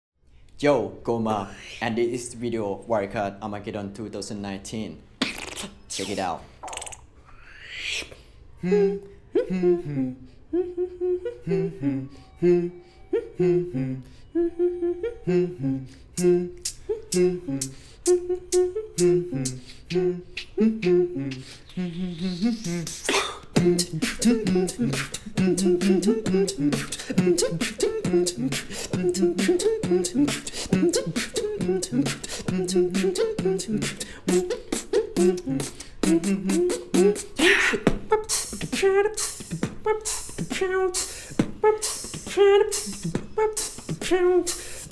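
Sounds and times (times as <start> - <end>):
beatboxed hi-hat snaps: 5.2 - 7.0, 16.2 - 44.9
beatboxed clicks and snares: 5.2 - 7.1, 7.8 - 8.3, 15.9 - 44.9.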